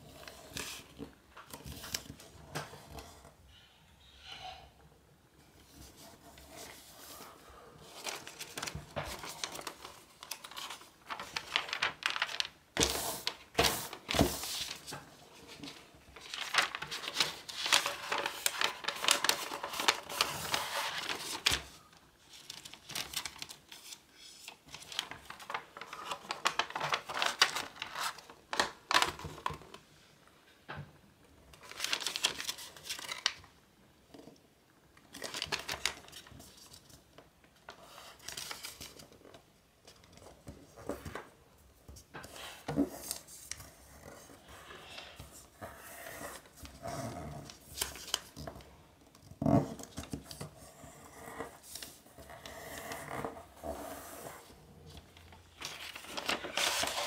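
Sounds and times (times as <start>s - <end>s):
paper rustling and crackling: 5.6s - 29.9s, 31.5s - 34.4s, 35.0s - 57.0s.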